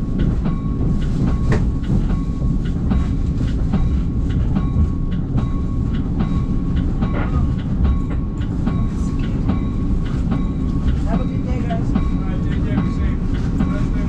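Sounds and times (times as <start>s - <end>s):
train low rumble: 0.0s - 14.0s.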